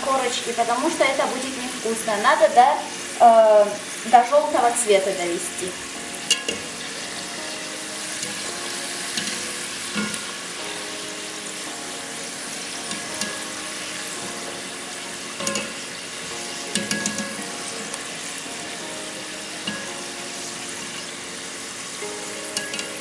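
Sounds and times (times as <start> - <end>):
dough sizzling in hot oil: 0.0 - 23.0
wire skimmer clinking against pot: 6.3 - 6.7, 16.7 - 17.4, 22.6 - 23.0.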